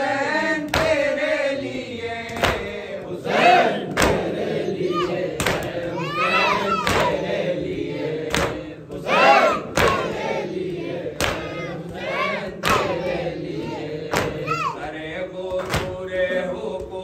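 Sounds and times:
group chanting together: 0.0s - 17.0s
chest-beating slaps: 0.6s - 1.2s, 2.2s - 2.8s, 3.8s - 14.7s, 15.5s - 17.0s.

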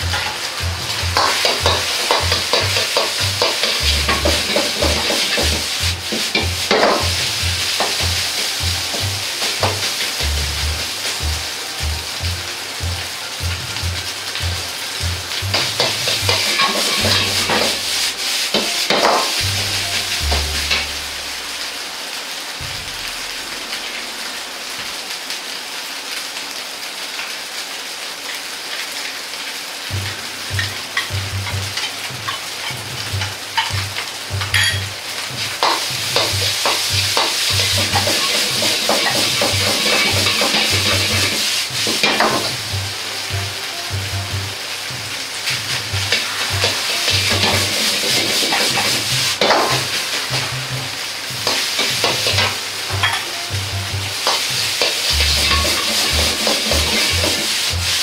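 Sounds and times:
ladle scraping wok: 0.0s - 11.2s, 15.3s - 21.5s, 35.4s - 43.4s, 45.3s - 58.0s
rhythmic low knocking: 0.0s - 21.4s, 22.6s - 24.4s, 29.9s - 58.0s
rice sizzling in wok: 0.0s - 58.0s.

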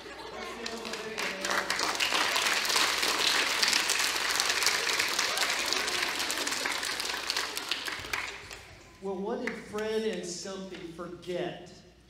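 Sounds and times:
children applauding: 0.0s - 9.0s.

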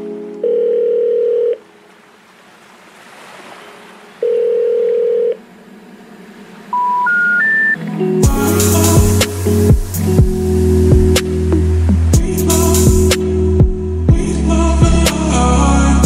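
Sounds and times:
held synth notes: 4.2s - 16.0s
sustained synth chord: 5.0s - 16.0s
soft rushing swell: 5.4s - 13.5s
short rising synth notes: 5.6s - 13.9s.

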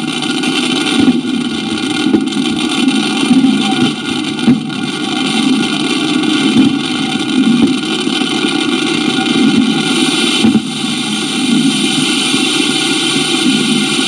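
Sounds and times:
fireworks crackling and popping: 8.1s - 14.0s.

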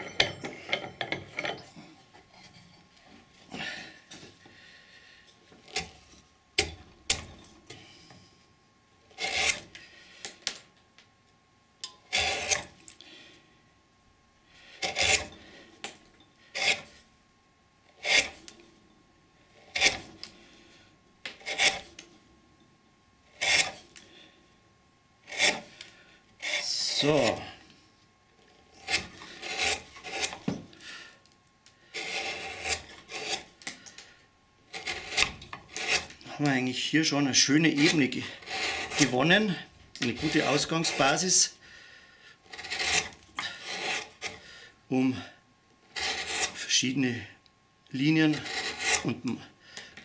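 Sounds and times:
gouge scraping wood: 9.2s - 9.7s, 12.1s - 12.7s, 14.7s - 15.7s, 16.5s - 17.0s, 18.0s - 18.4s, 19.6s - 20.1s, 21.4s - 22.0s, 23.3s - 23.8s, 25.2s - 25.8s, 26.4s - 27.5s, 28.7s - 30.6s, 31.9s - 33.5s, 34.7s - 36.2s, 37.7s - 41.4s, 42.5s - 44.5s, 45.9s - 46.7s, 48.2s - 49.2s.

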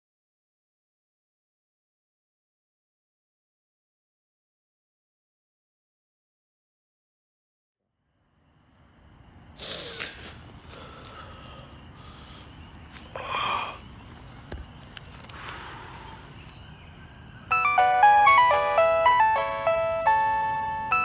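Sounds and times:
mobile phone ringtone: 17.4s - 21.0s.

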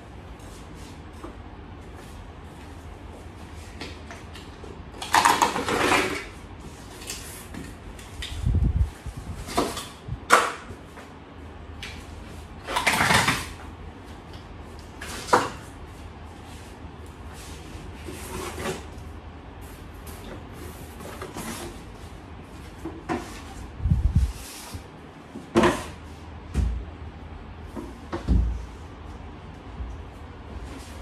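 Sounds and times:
cardboard rustling and scraping: 15.0s - 19.0s, 19.6s - 26.2s.

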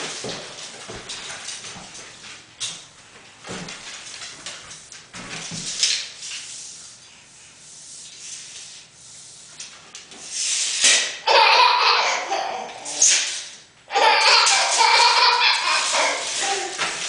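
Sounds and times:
baby laughing: 11.2s - 13.1s, 13.9s - 17.0s
tape measure blade zipping: 12.8s - 13.6s, 14.3s - 16.8s.

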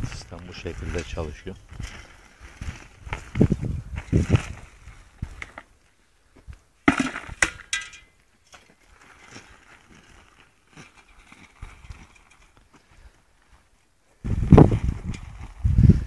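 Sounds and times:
olives clattering into bucket: 6.8s - 8.7s
roller rattling and scraping: 7.0s - 12.6s.

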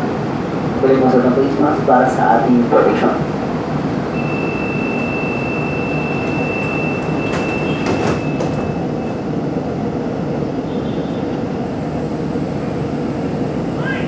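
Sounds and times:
rail car hum: 0.0s - 14.0s
steady high warning beep: 4.1s - 9.2s
sliding doors clunking shut: 4.2s - 9.1s.

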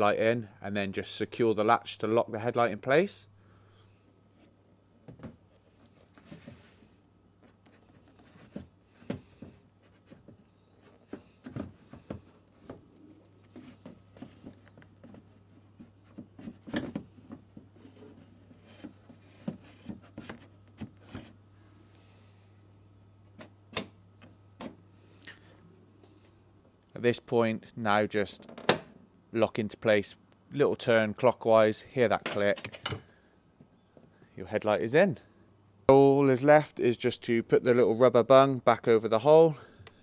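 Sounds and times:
plastic knocking and scraping: 7.4s - 21.4s.

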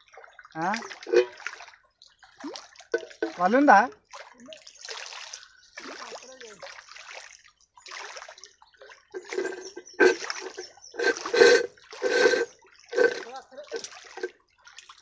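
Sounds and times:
water splashing and sloshing: 0.0s - 15.0s.

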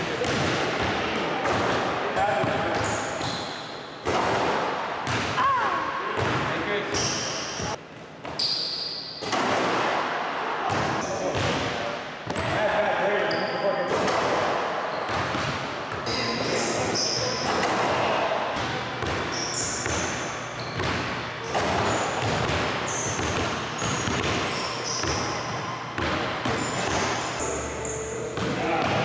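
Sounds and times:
short high squeaks: 8.4s - 9.1s, 19.3s - 20.8s, 22.8s - 25.8s, 26.5s - 28.2s
basketballs bouncing on hardwood: 18.6s - 27.2s.

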